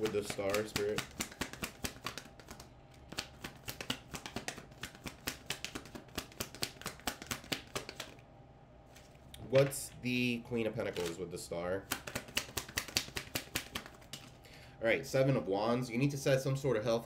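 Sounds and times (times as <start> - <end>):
cards being shuffled: 0.0 - 8.2, 10.8 - 14.4.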